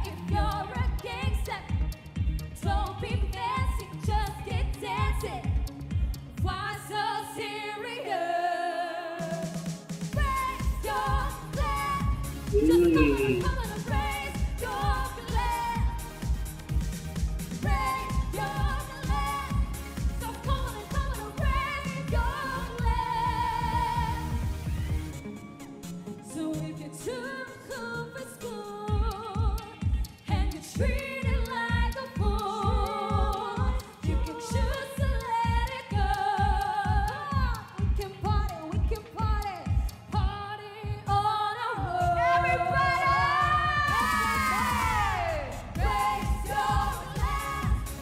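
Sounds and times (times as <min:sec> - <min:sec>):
women singing pop: 0:00.0 - 0:16.5, 0:17.5 - 0:24.7, 0:26.2 - 0:48.0
band with drum beat: 0:09.4 - 0:22.2, 0:42.9 - 0:48.0
band with steady beat: 0:12.5 - 0:15.5.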